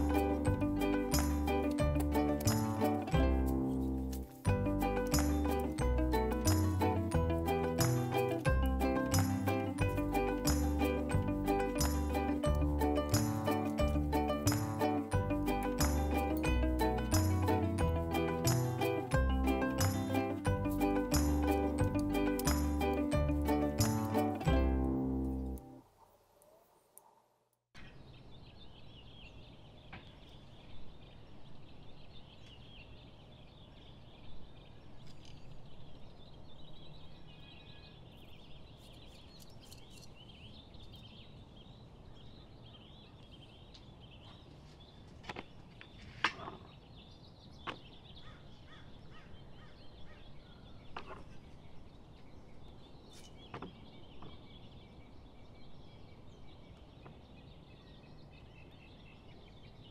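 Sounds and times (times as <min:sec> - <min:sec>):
distant birds chirping: 0:27.8 - 0:59.9.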